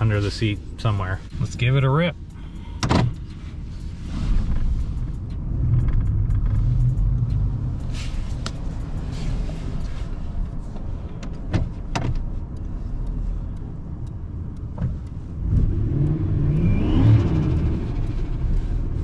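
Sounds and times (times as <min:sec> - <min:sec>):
truck engine running and revving: 0:03.0 - 0:10.8, 0:12.5 - 0:19.0
faint turbo whistle: 0:16.4 - 0:17.5.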